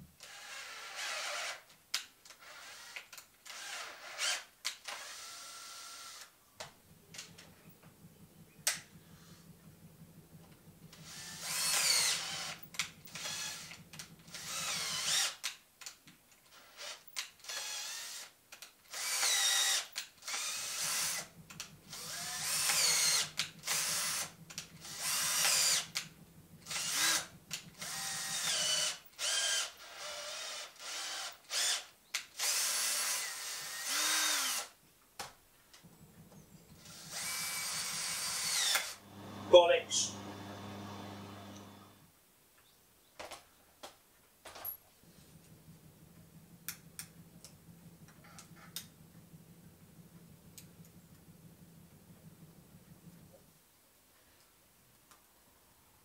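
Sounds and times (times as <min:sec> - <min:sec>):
cordless drill bursts: 0:00.2 - 0:01.6, 0:02.4 - 0:06.3, 0:11.0 - 0:15.4, 0:16.6 - 0:18.3, 0:18.9 - 0:21.3, 0:21.9 - 0:34.7, 0:36.8 - 0:42.0.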